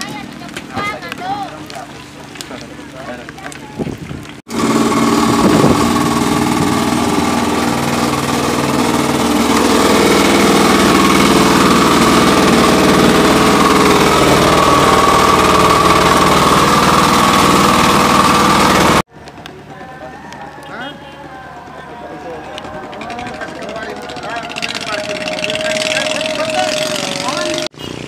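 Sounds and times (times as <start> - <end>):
boat engine chugging: 4.5 - 19.1, 20.7 - 28.0.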